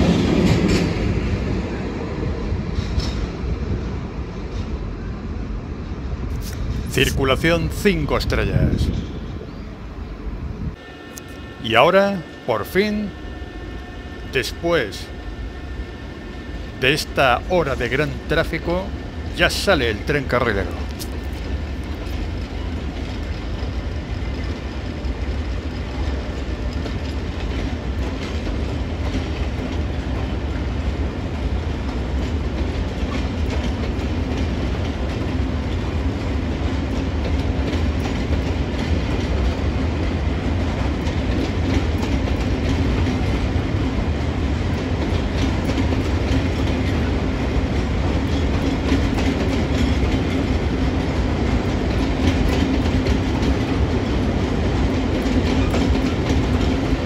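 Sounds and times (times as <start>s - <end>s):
train wheels clacking over track: 0.0s - 3.6s, 16.4s - 57.0s
freight train rolling past: 0.0s - 57.0s.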